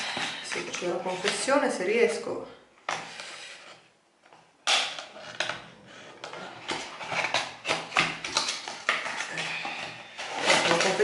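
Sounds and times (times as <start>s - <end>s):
packaging rustling: 4.7s - 11.0s
packaging clicks and knocks: 6.2s - 11.0s.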